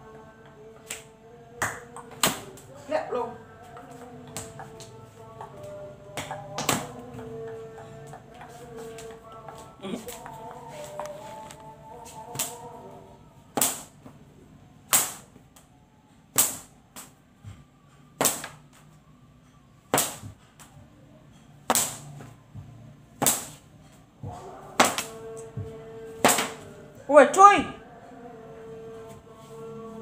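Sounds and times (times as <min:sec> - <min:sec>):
whip cracks: 0:13.6 - 0:14.0, 0:14.9 - 0:15.3, 0:16.4 - 0:17.1, 0:18.2 - 0:18.6, 0:19.9 - 0:20.3, 0:21.7 - 0:22.1, 0:23.2 - 0:23.6, 0:26.2 - 0:26.6.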